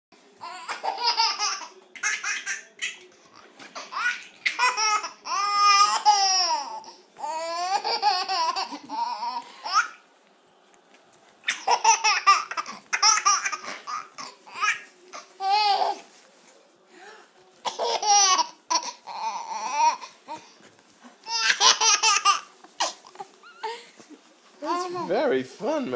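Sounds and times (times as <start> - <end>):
baby laughing and squealing: 0.4 - 3.1, 3.8 - 10.0, 11.4 - 16.0.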